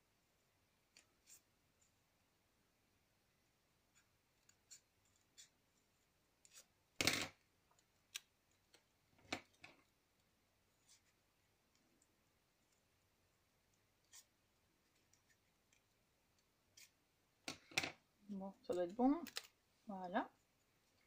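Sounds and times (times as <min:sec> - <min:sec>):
scissors snipping card: 0:18.7 - 0:19.6.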